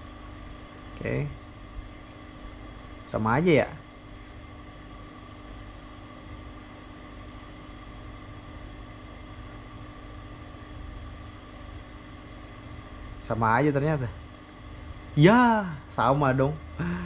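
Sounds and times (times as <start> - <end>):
cooling fans humming: 0.0 - 17.0.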